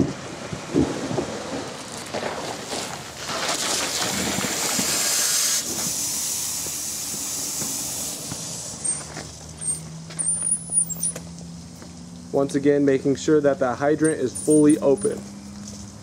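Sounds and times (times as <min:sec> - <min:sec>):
water hissing through hose: 0:02.4 - 0:11.1
brief high squeaks: 0:08.8 - 0:11.2.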